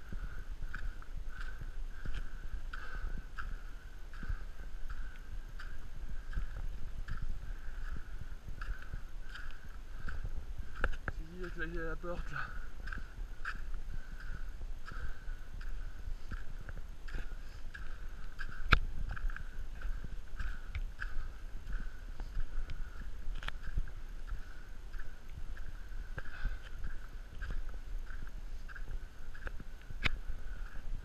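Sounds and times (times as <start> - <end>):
footsteps crunching on ash: 8.6 - 13.8.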